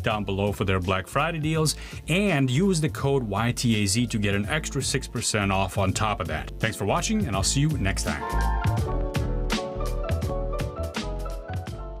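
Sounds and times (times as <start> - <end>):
background music with drum beat: 0.0 - 12.0.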